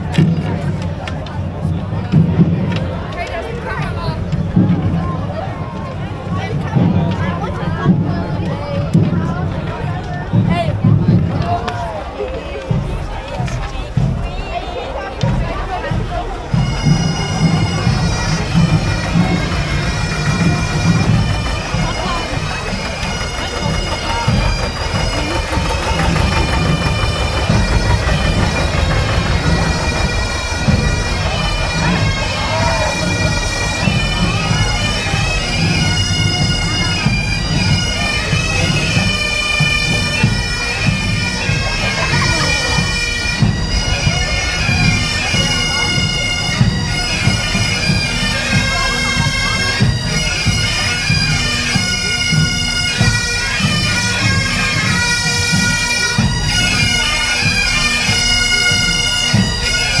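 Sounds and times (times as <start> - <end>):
drumbeats: 0.0 - 60.0
marching band wind instruments: 0.0 - 60.0.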